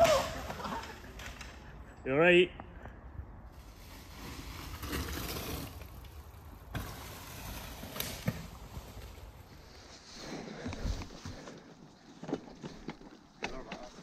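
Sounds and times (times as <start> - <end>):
bike tyres rolling through leaves: 3.5 - 14.0.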